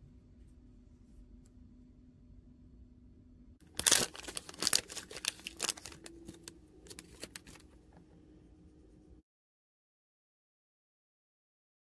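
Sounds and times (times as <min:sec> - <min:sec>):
plastic wrapper tearing and crinkling: 0:03.6 - 0:07.8.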